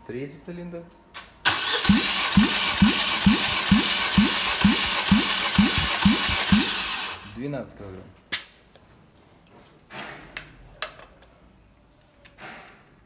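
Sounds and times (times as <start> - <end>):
engine cranking with pulsing whir: 1.5 - 7.4.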